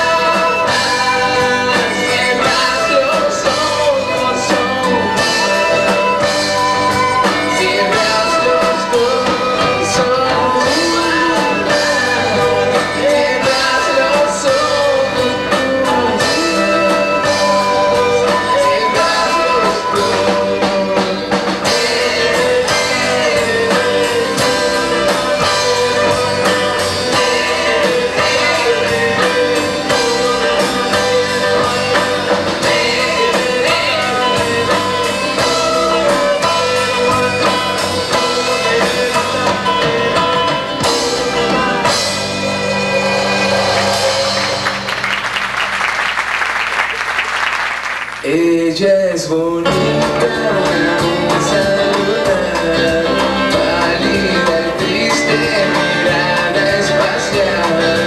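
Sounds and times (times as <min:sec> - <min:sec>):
person singing: 0:00.0 - 0:44.9, 0:48.2 - 0:58.0
acoustic band playing: 0:00.0 - 0:58.0.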